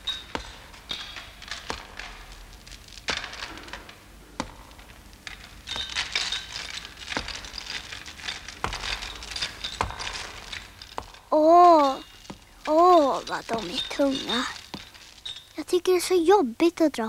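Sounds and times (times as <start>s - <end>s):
heavy chain rattling: 4.5s - 15.6s.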